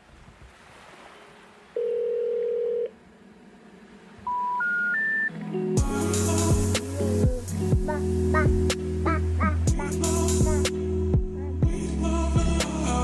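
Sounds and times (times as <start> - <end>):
long low electronic beep: 4.2 - 5.3
short rising electronic beeps: 4.2 - 5.3.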